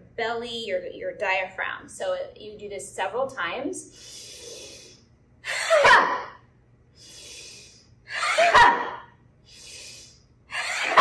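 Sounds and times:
hissing in-breath: 3.9s - 5.0s, 7.0s - 7.9s, 9.5s - 10.2s.

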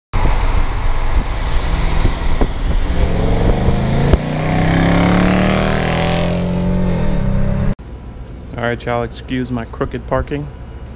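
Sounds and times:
car engine accelerating hard: 0.2s - 7.8s
exhaust crack: 0.2s - 7.8s.

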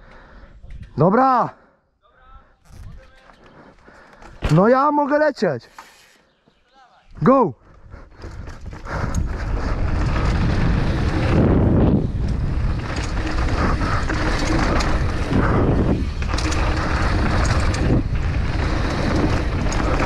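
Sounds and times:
bike tyres on gravel: 2.6s - 4.7s, 8.2s - 20.0s
bike clicking and rattling: 2.6s - 6.4s, 7.1s - 20.0s
wind rushing over microphone: 7.8s - 20.0s.

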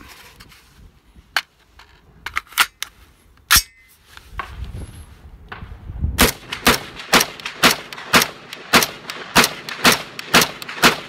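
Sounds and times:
rifle shots with echo: 6.2s - 11.0s.

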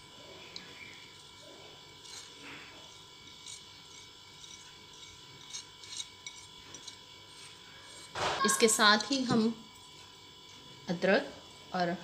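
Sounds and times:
faint scraping in a bowl: 0.6s - 8.2s.

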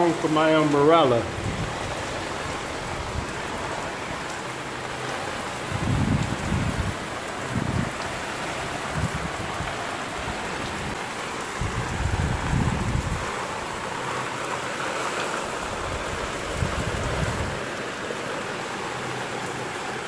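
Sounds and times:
heavy rain on tiles: 0.0s - 20.0s
wind gusts buffeting microphone: 0.9s - 14.0s, 15.4s - 17.8s.

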